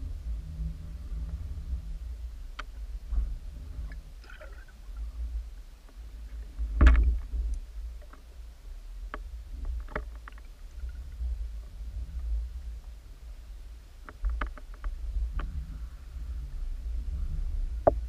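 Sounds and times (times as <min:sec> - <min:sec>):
underwater rumble of moving water: 0:00.0 - 0:18.0
underwater clicks and knocks: 0:05.8 - 0:08.3, 0:09.1 - 0:11.2, 0:14.0 - 0:15.6.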